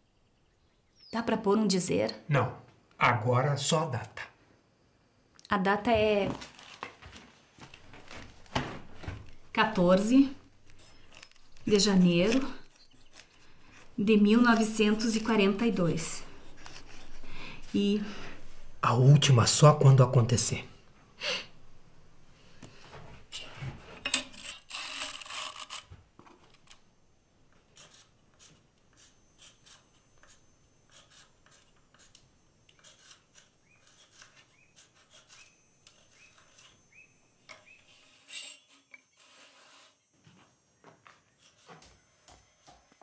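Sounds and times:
light scraping and rubbing: 7.9s - 18.8s, 27.8s - 40.1s.

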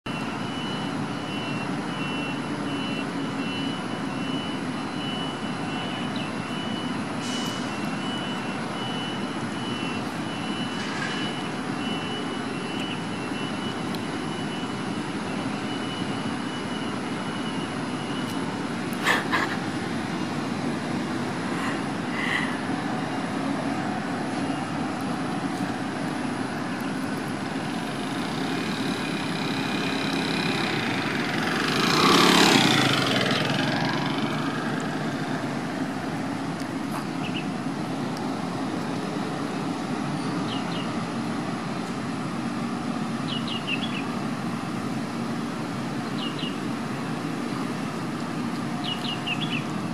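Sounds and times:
distant traffic hum: 0.1s - 49.9s
vehicle passing: 27.8s - 36.1s
bird chirping: 48.8s - 49.7s.

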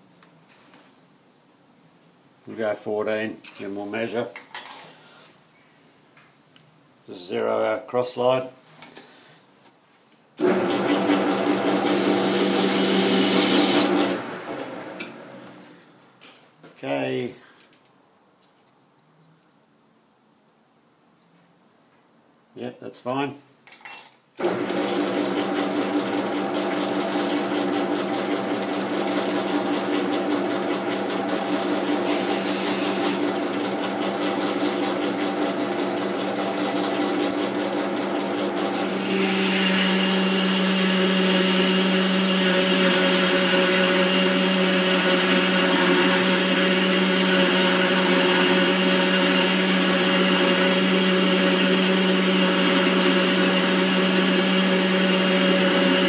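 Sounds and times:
metal lathe gear hum: 10.4s - 15.2s, 24.5s - 36.4s, 37.5s - 56.0s
high ring of lathe cutting metal: 11.8s - 13.9s, 32.0s - 33.2s, 38.8s - 41.2s.

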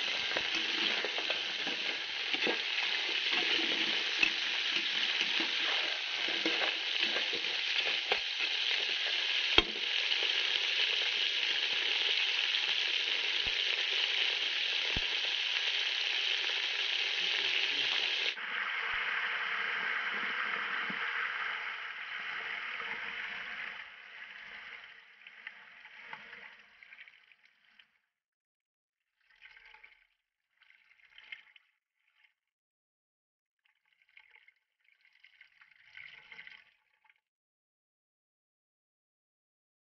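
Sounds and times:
faint splashes: 0.0s - 15.3s
liquid pouring: 0.0s - 18.4s, 29.2s - 31.7s, 33.7s - 37.2s
crabs sizzling in a pot: 0.0s - 22.2s.

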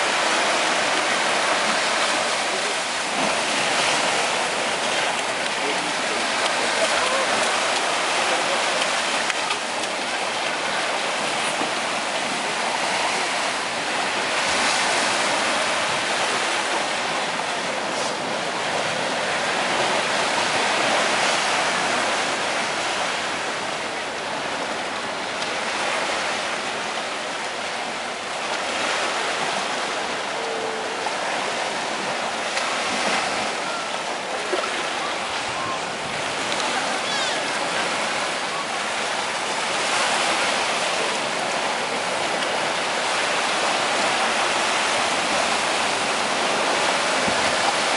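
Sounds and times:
surf breaking on beach: 0.0s - 47.9s.

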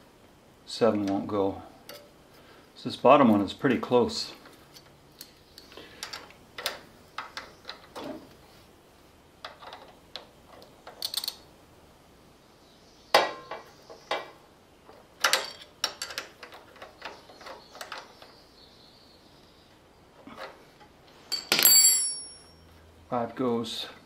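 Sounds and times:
metal tools clicking and clinking: 9.4s - 11.4s, 15.2s - 18.1s, 21.3s - 22.7s.

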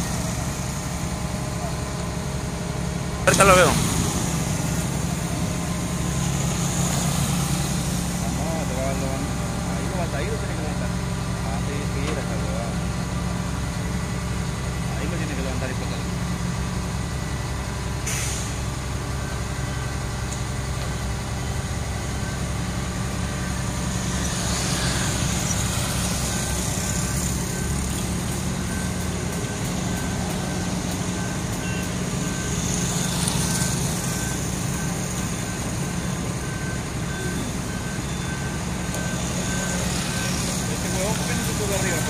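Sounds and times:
diesel engine running under load: 0.0s - 42.0s
reversing alarm beeping: 3.2s - 14.0s, 17.0s - 42.0s
brief hiss: 18.1s - 18.6s.

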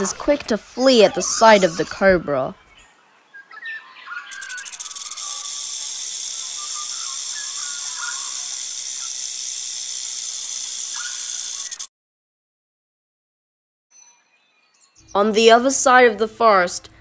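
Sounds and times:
faint bird chirps: 1.0s - 9.3s, 10.8s - 11.9s
snake hissing: 4.3s - 11.9s.

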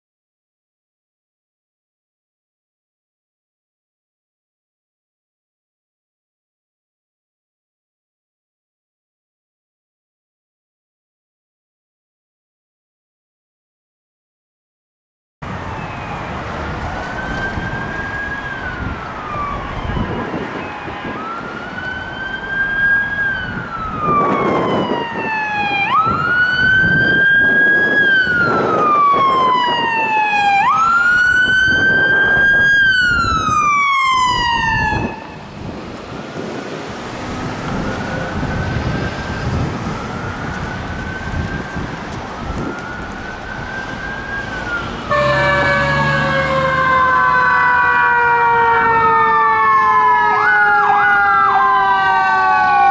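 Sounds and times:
fire engine siren tones: 15.4s - 52.9s
electronic siren wailing: 15.8s - 35.6s, 37.1s - 52.9s.

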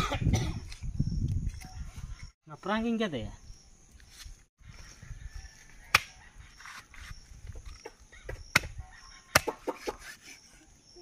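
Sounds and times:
knife chopping on wooden block: 8.3s - 8.7s, 9.3s - 10.2s.

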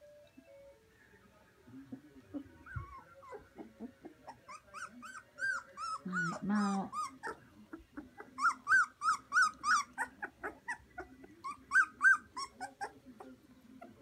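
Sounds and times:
puppies whimpering: 1.8s - 14.0s
puppies squealing: 1.9s - 13.0s.

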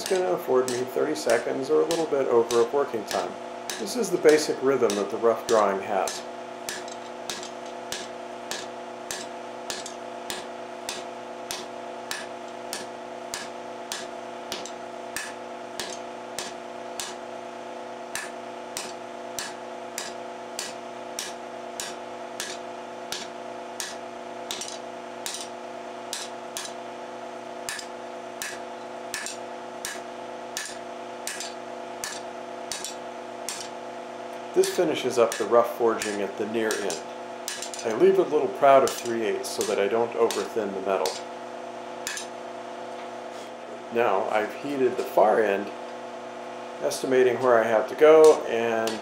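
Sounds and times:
hammer striking steel on anvil: 0.0s - 17.2s, 18.1s - 26.8s, 27.6s - 33.8s, 34.6s - 38.2s, 38.8s - 41.3s, 42.1s - 42.4s
steady hum: 0.0s - 49.0s.

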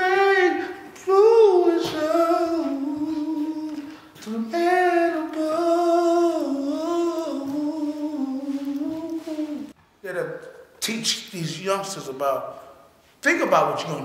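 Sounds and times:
person humming wordless melody: 0.0s - 9.8s.

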